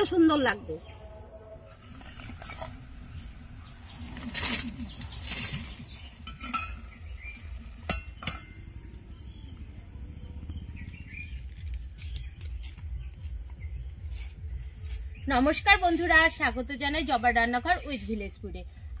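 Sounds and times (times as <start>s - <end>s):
utensils scraping: 1.6s - 3.0s.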